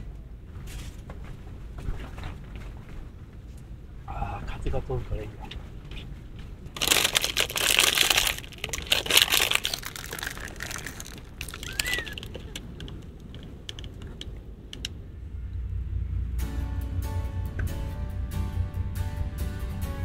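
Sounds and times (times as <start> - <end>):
faint rustles and ticks: 0.5 - 15.0
plastic wrapper crinkling: 6.8 - 14.2.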